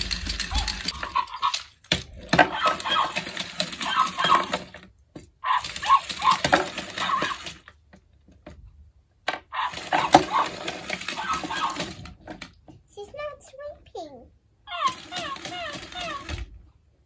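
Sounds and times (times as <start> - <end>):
toy electronic sound effects: 0.0 - 1.7, 2.5 - 4.6, 5.4 - 7.6, 9.5 - 12.0, 14.7 - 16.5.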